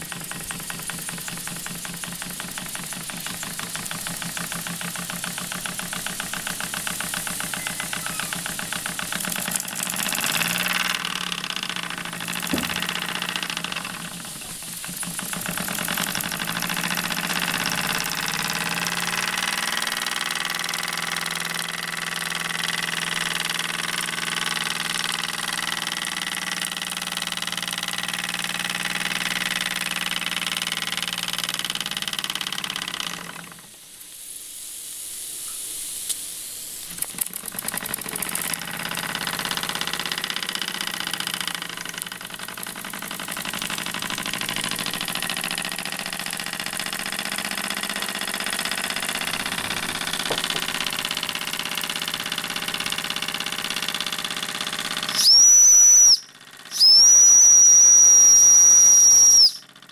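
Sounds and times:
steam engine running: 0.0 - 33.9, 36.6 - 59.9.

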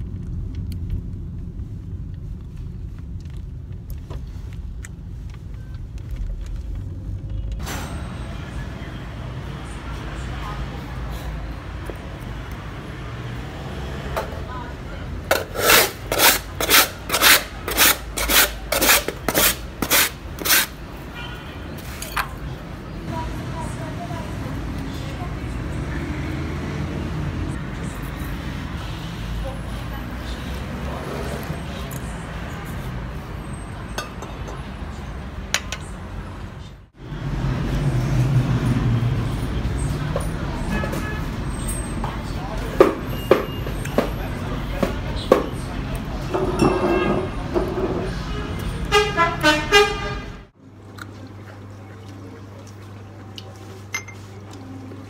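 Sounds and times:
street traffic rumble: 0.0 - 55.0
scraper rasping on ice: 15.3 - 20.8
utensil clinking on glass bowl: 53.9 - 54.3.

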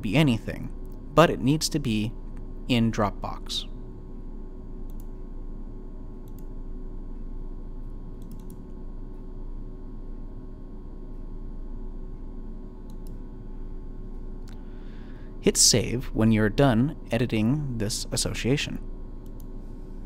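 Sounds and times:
low room hum: 0.0 - 20.0
computer mouse clicks: 4.8 - 5.2, 6.2 - 6.5, 8.2 - 8.8, 12.8 - 13.2, 19.2 - 19.6.

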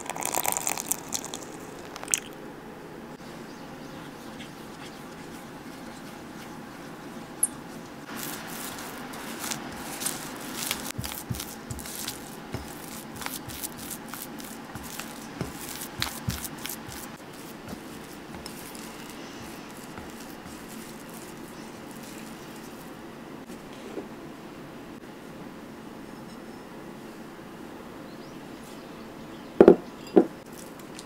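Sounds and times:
faint steady hum: 0.0 - 31.0
spatula stirring thick paste: 3.8 - 23.0.

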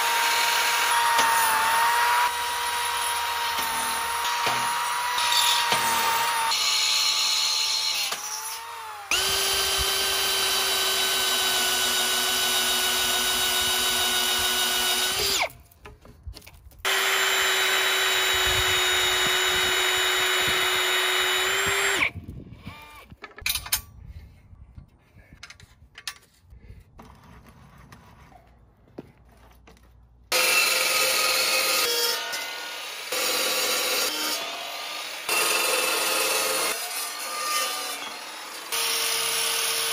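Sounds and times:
electric drill boring: 0.0 - 15.5, 16.9 - 22.1, 30.3 - 39.9
chop saw cutting steel pipe: 0.0 - 15.6, 16.9 - 22.1, 30.3 - 39.9.

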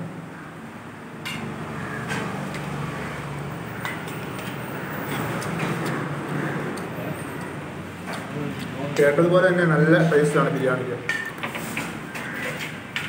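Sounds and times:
motor vehicle humming: 1.3 - 8.6.

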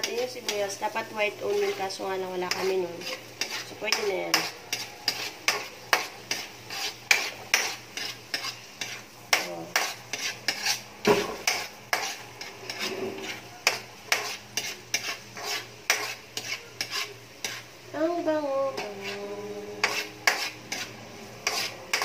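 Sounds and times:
metal spatula scraping a wok: 0.0 - 17.8, 18.6 - 22.0
light frying sizzle: 0.0 - 22.0.

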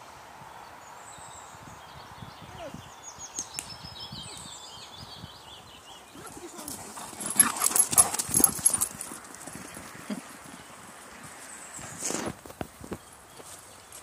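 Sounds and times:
dog paws pounding on gravel: 6.2 - 14.0.

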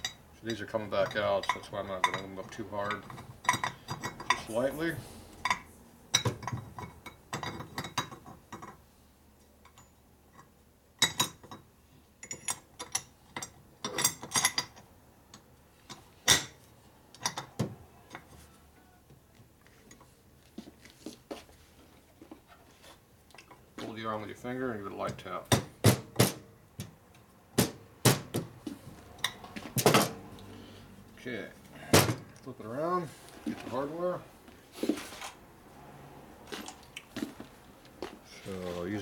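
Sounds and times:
metal clinks and knocks: 0.0 - 4.6, 5.4 - 8.8, 9.6 - 18.4.

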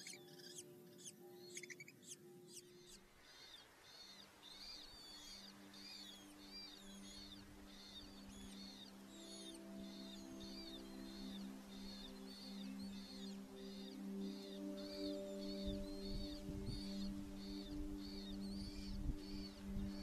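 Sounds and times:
high-pitched bird calls: 0.0 - 20.0
soft background music: 0.0 - 20.0.

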